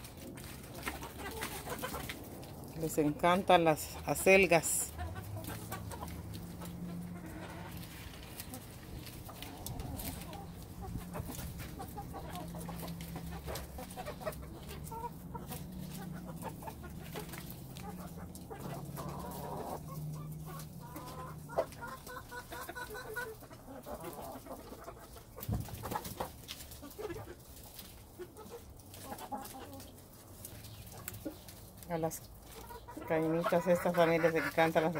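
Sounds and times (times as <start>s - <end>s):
hens clucking: 0.0s - 34.9s.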